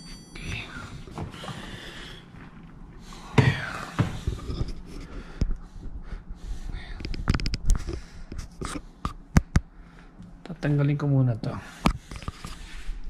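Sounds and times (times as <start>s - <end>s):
sharp clicks and knocks: 7.0s - 9.7s.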